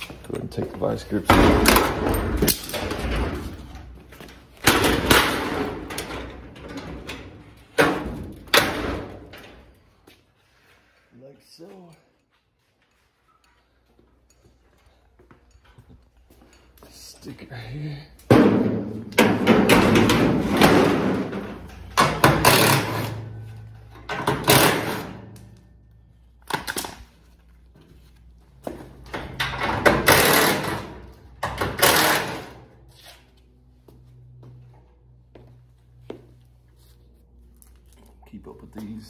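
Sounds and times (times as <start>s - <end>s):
metal door clanging: 1.1s - 4.0s, 4.6s - 9.7s, 18.3s - 25.4s, 29.0s - 32.7s.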